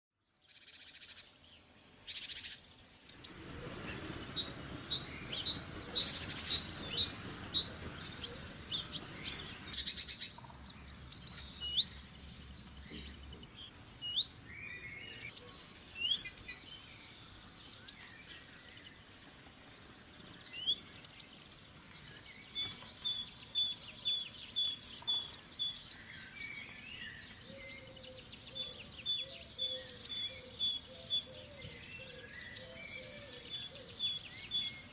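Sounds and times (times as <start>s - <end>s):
bird singing high trill: 0.4s - 34.9s
bird thin chips and calls: 0.5s - 13.6s, 32.1s - 34.9s.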